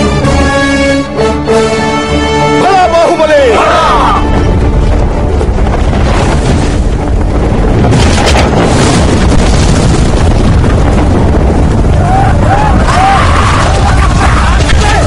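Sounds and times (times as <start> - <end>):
rumble of booms: 4.2 - 15.0.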